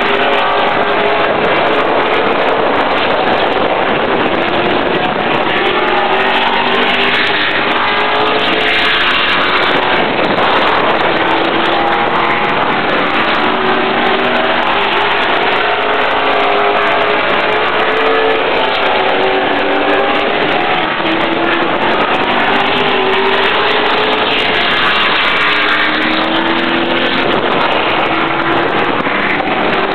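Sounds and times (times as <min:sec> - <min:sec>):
race car engine at speed: 0:00.0 - 0:29.9.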